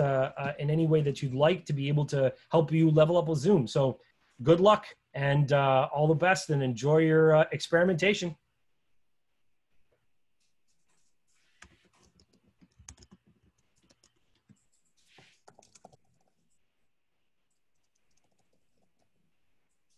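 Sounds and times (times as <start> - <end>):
faint keyboard typing: 10.4 - 19.9.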